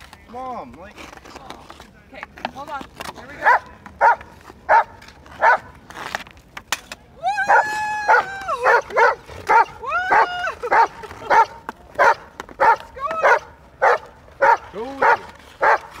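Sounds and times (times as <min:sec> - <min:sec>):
dog barking and yelping: 0:03.4 - 0:05.7, 0:07.5 - 0:15.9.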